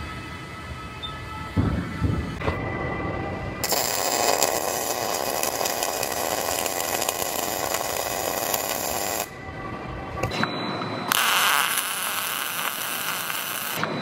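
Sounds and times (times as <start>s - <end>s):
welder arc crackling hiss: 3.6s - 9.3s, 11.1s - 13.8s.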